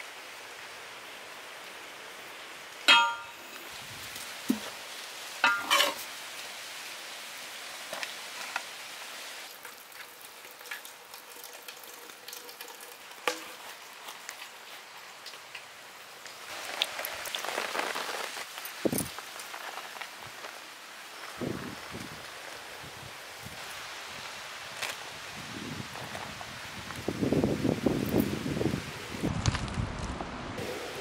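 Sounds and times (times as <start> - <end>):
metal ladle scraping serving vessels: 5.4 - 6.1
rice sliding and falling: 16.5 - 21.2.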